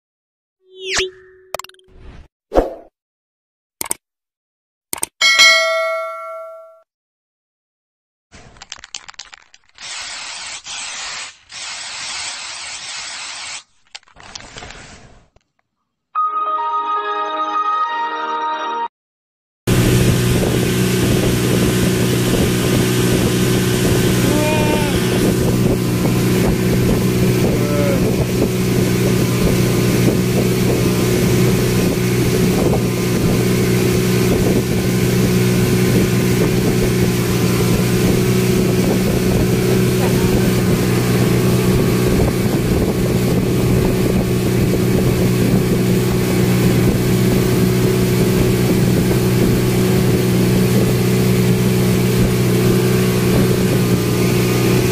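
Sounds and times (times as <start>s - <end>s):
speedboat engine droning: 19.7s - 54.9s.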